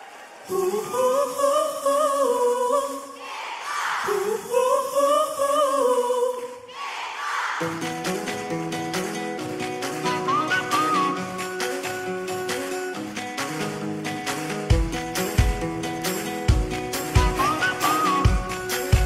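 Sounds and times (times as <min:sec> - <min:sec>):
crowd cheering: 0:00.0 - 0:01.4, 0:03.2 - 0:04.6, 0:06.7 - 0:14.6, 0:15.2 - 0:19.0
person singing wordless phrases: 0:00.4 - 0:06.7, 0:17.2 - 0:19.0
band playing: 0:07.6 - 0:19.0.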